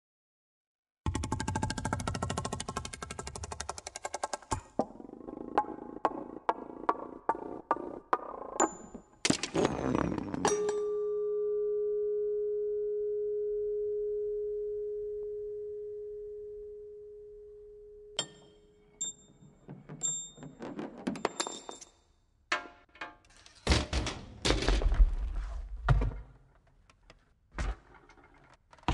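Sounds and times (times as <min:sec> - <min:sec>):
small metallic clicks and pings: 0:18.1 - 0:19.4
struck metal part ringing: 0:18.2 - 0:19.3
metal parts clattering on wooden floor: 0:19.8 - 0:21.9.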